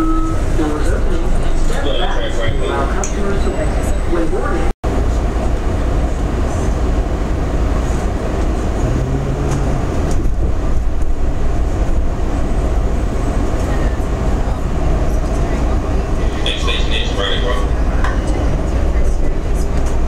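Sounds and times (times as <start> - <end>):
train interior rumble: 0.0 - 20.0
brief low hum: 8.8 - 10.6.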